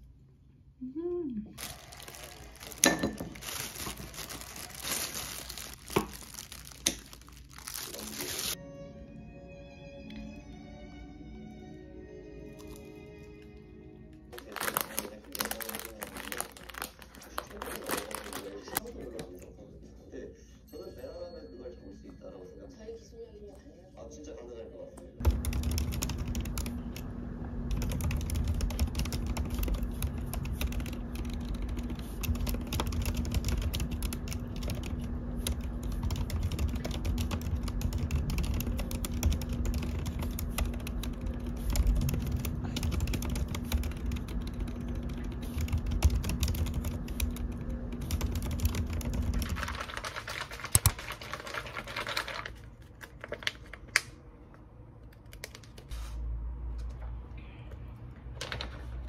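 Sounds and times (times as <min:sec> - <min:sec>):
typing on mechanical keyboard: 0:25.2 - 0:54.1.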